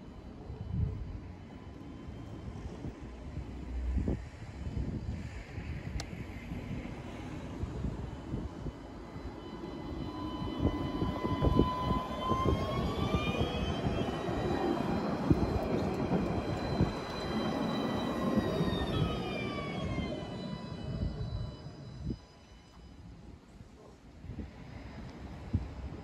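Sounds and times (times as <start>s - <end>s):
tram drive whining: 0.1s - 23.3s
steel wheels rumbling on rails: 6.4s - 22.2s.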